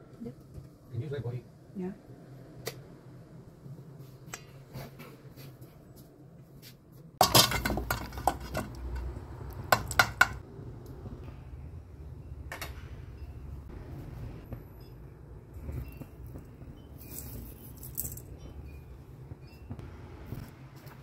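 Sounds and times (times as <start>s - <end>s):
metal bowl and pot clattering: 7.2s - 10.4s.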